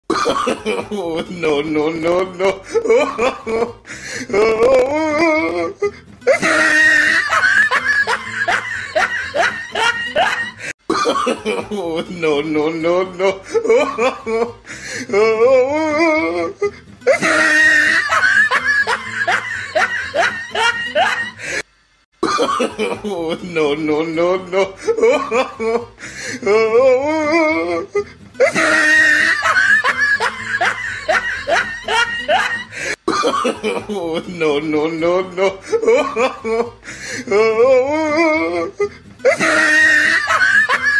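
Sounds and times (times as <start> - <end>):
person laughing hard: 0.1 - 12.4, 13.2 - 21.6, 22.2 - 23.7, 24.6 - 34.5, 35.2 - 40.9
person wailing: 0.6 - 10.7, 11.5 - 21.4, 22.9 - 32.8, 33.8 - 40.9
wavering drawn-out vocal cry: 4.3 - 10.7, 15.1 - 21.4, 26.4 - 32.8, 37.2 - 40.9.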